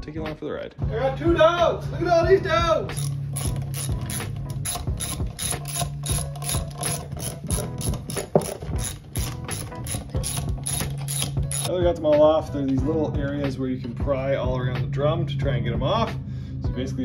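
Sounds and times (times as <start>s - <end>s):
ratchet wrench clicking: 2.9s - 11.7s.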